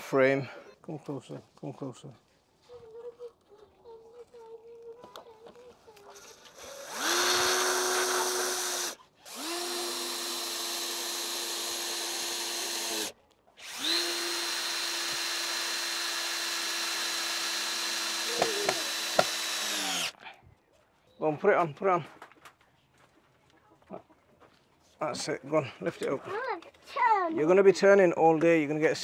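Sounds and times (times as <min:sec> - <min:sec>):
cordless drill whining: 0:06.0 - 0:20.2.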